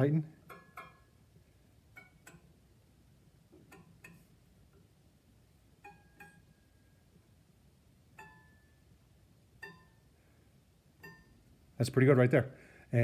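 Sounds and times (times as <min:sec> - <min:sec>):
saw blade plucked metallic pings: 0:00.4 - 0:01.2, 0:03.7 - 0:04.3, 0:05.8 - 0:06.7, 0:08.2 - 0:08.8, 0:09.6 - 0:10.0, 0:11.0 - 0:11.5.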